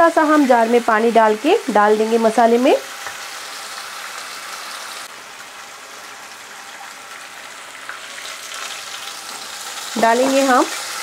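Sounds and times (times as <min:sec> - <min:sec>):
paste sizzling and spitting in oil: 0:02.3 - 0:11.0.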